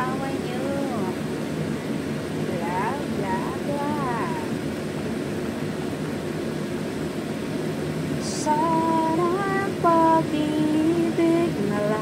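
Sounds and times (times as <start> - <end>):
woman singing: 0.0 - 1.2, 2.5 - 4.6, 8.2 - 12.0.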